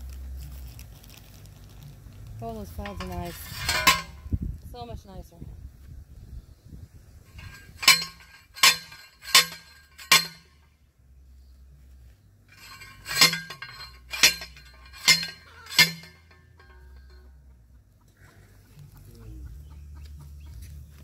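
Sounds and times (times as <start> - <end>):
post driver clanking on metal: 2.7 - 4.3, 7.3 - 10.6, 12.5 - 17.6.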